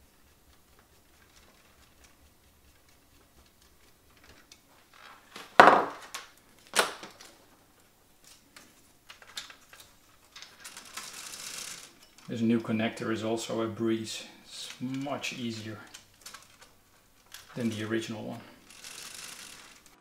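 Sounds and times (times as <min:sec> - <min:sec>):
loud hard knocks: 0:05.6 - 0:06.0.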